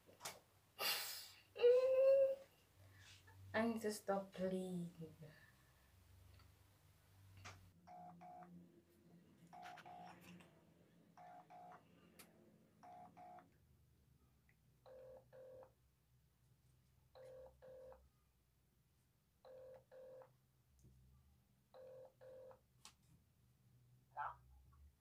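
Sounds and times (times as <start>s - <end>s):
telephone ring-back tone: 9.6s - 10.2s, 12.8s - 13.4s, 14.9s - 15.7s, 17.2s - 18.0s, 19.5s - 20.3s.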